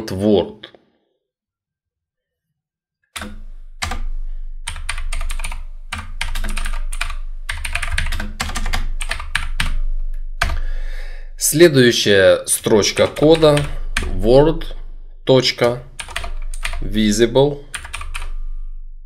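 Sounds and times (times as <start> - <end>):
keyboard typing: 3.2 - 10.6, 12.6 - 18.4.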